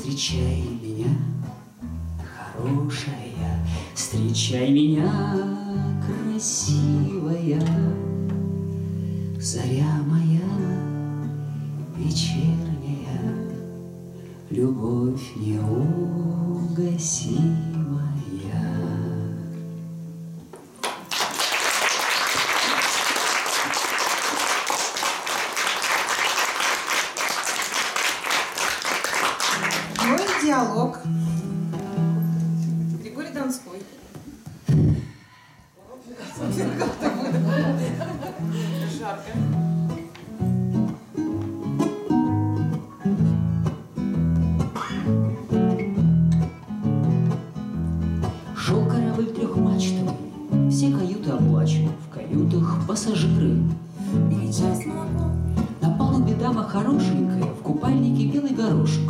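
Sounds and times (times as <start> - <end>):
acoustic guitar strumming: 0.0 - 20.7, 29.2 - 33.1, 36.4 - 59.0
audience applause: 20.8 - 30.6.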